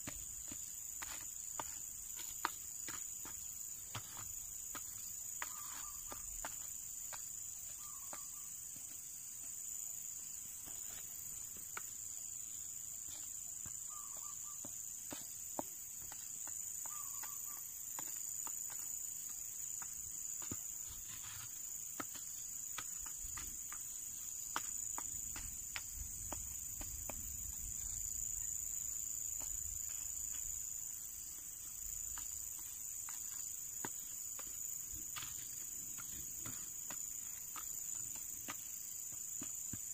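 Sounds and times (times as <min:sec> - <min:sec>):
insect chorus drone: 0:00.0 - 0:39.9
stick scraping gravelly soil: 0:20.8 - 0:22.3.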